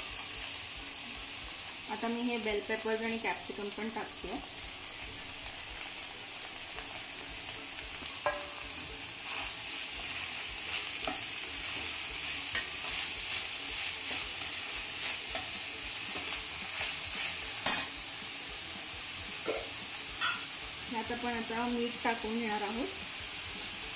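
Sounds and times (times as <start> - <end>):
vegetables sizzling in hot oil: 0.0 - 23.9
spatula scraping and knocking pan: 8.0 - 8.8.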